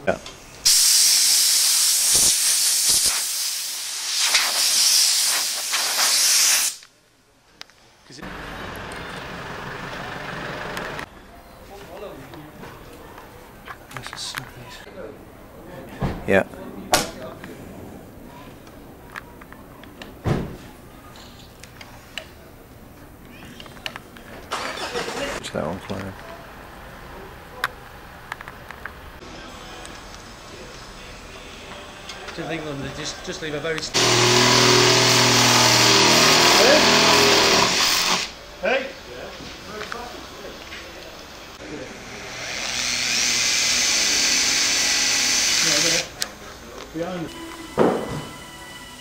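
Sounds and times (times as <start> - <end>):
compressed air blow gun hissing: 0.6 - 6.8.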